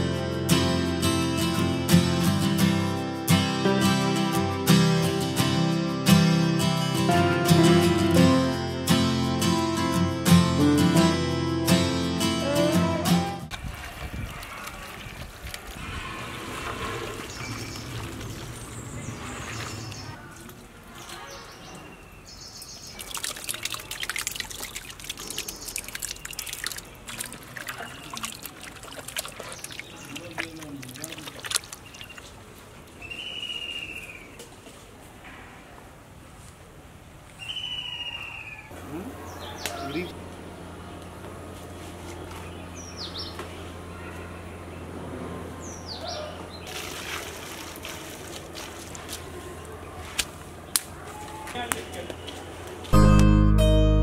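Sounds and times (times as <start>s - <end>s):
water splashing and streaming: 13.5s - 21.9s, 22.6s - 33.0s, 46.6s - 49.6s
hands squelching raw chicken: 23.0s - 32.4s.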